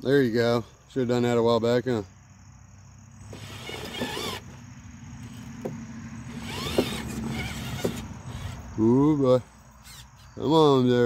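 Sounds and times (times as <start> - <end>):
electric motor whining: 3.2 - 4.6, 5.2 - 8.8, 9.8 - 10.3.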